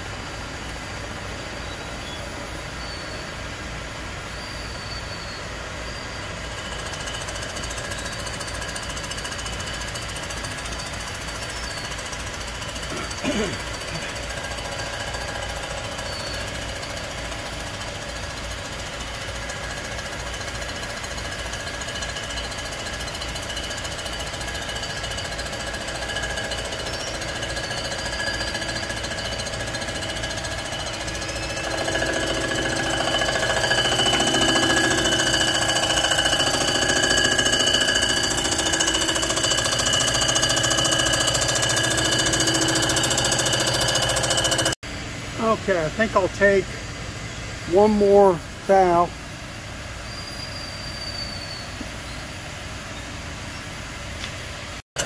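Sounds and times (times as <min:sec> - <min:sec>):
surfacing machine running: 0:06.4 - 0:44.8.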